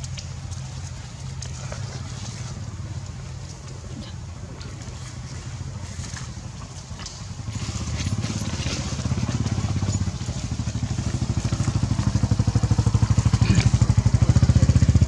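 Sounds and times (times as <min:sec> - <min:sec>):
small engine running: 0:05.8 - 0:15.0.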